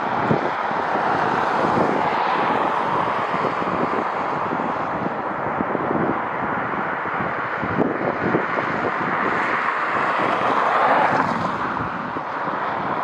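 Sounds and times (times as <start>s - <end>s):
jet engine roar: 0.0s - 13.0s
wind buffeting microphone: 0.0s - 13.0s.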